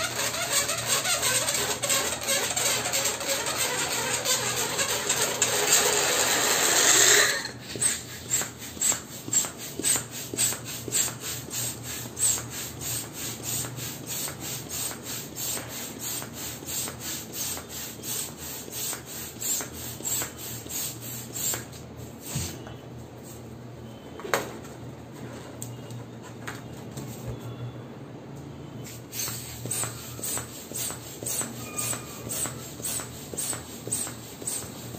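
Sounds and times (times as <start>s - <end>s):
hand balloon pump strokes: 0.0s - 22.6s, 28.9s - 34.9s
short falling squeak: 31.6s - 32.3s.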